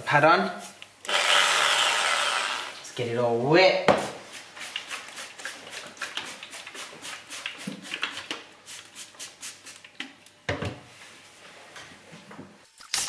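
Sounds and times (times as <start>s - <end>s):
spray bottle squirting water: 4.3s - 10.0s, 12.7s - 13.0s.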